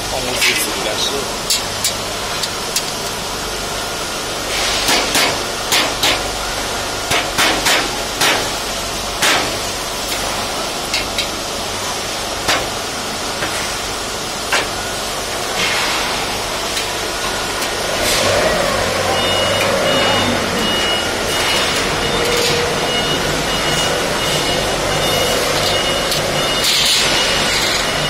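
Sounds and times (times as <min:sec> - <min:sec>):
mallet striking steel frame: 0:04.8 - 0:06.3, 0:07.1 - 0:08.6, 0:09.2 - 0:09.6.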